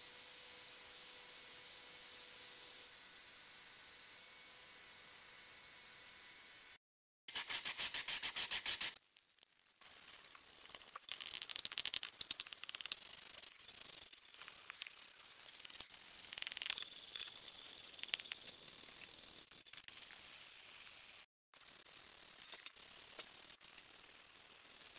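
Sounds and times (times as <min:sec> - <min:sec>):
sandpaper rubbing wood: 0:07.3 - 0:09.0.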